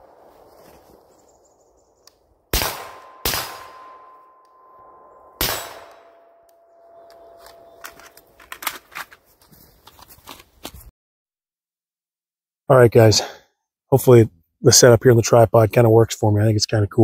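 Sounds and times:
suppressed rifle shots: 0:02.5 - 0:04.2, 0:05.4 - 0:06.2
ringing tone: 0:03.0 - 0:08.4
rifle handling clicks and rattles: 0:07.1 - 0:10.8.

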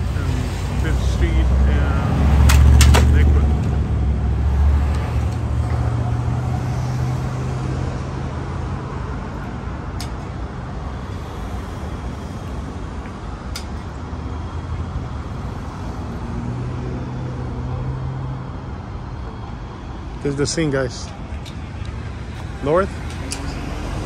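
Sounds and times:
traffic hiss: 0:00.0 - 0:17.7
vehicle engine hum: 0:00.0 - 0:24.0.

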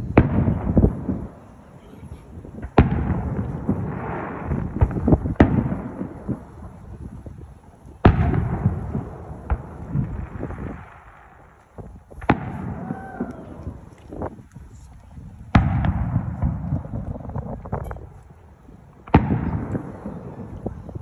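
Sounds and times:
rolling echo: 0:00.0 - 0:14.6, 0:15.4 - 0:21.0
small firework cracks: 0:00.0 - 0:21.0.

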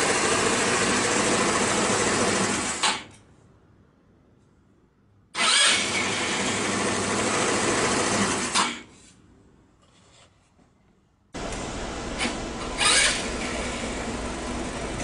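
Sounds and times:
scooter harsh whirring buzz: 0:00.0 - 0:02.8, 0:05.4 - 0:08.6, 0:11.4 - 0:15.0.

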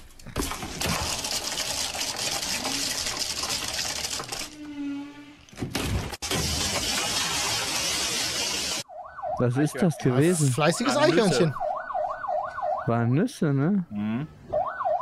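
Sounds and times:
nuts rattling and spilling: 0:00.4 - 0:04.6.

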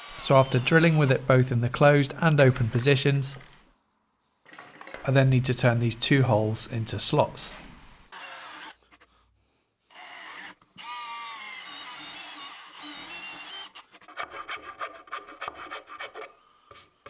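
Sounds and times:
drill whining in plywood: 0:08.1 - 0:08.8, 0:09.9 - 0:13.9
file rasping in wood: 0:11.8 - 0:16.9.

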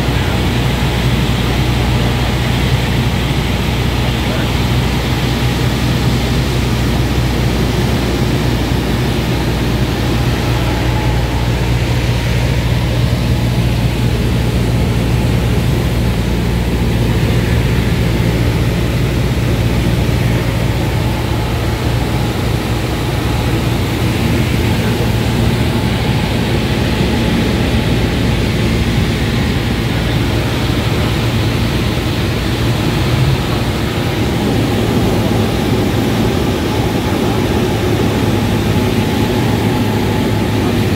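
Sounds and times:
airflow rushing: 0:00.0 - 0:40.9
airplane engine and propeller drone: 0:00.0 - 0:40.9.

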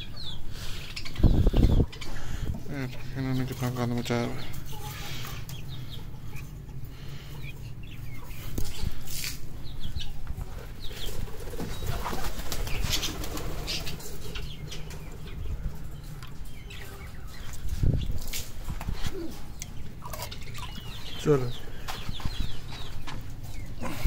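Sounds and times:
pigeons flapping wings: 0:11.3 - 0:14.0.

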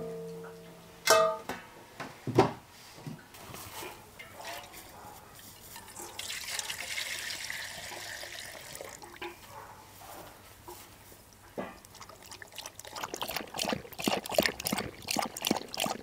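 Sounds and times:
water running and splashing: 0:06.0 - 0:09.3, 0:11.7 - 0:16.0.

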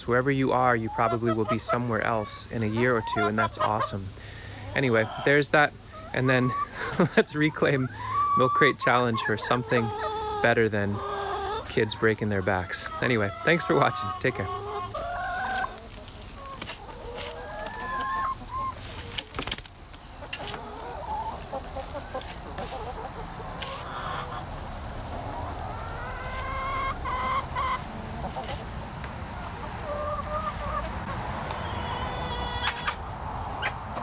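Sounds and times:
hens clucking: 0:00.0 - 0:34.0
rustling and scraping in straw: 0:14.8 - 0:20.8, 0:21.5 - 0:26.8, 0:27.6 - 0:28.7.

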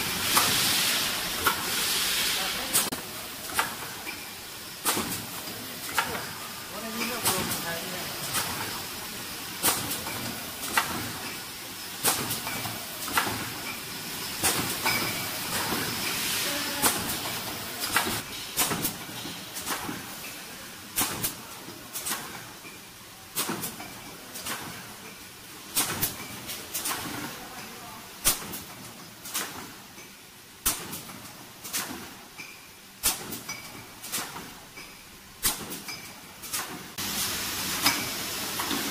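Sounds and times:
steady hiss: 0:00.0 - 0:21.5.

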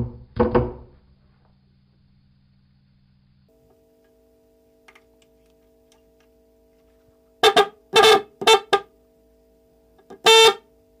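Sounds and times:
electric horn blasts: 0:06.8 - 0:09.0, 0:10.0 - 0:10.8.

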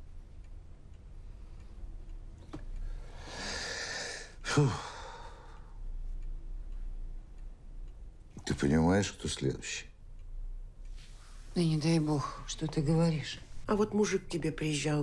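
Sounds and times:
person sighing heavily: 0:03.2 - 0:05.4.

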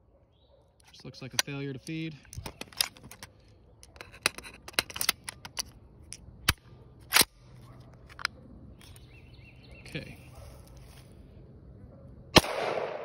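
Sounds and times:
rifle action clicking and clacking: 0:01.2 - 0:07.4
sharp crack: 0:12.4 - 0:13.0.

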